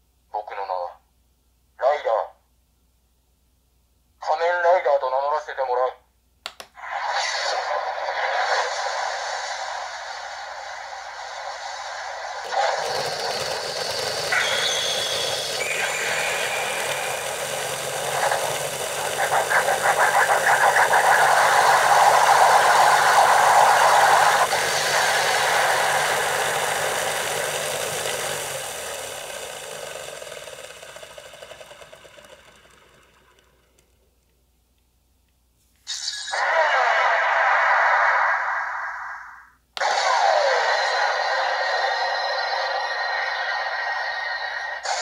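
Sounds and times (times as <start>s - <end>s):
electronic toy whir and pulse: 6.8s - 34.0s, 39.8s - 45.0s.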